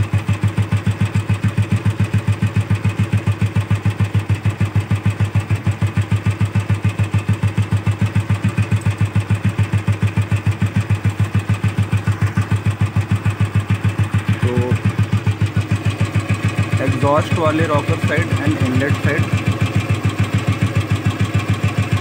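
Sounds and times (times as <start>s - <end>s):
motorcycle engine idling: 0.0s - 22.0s.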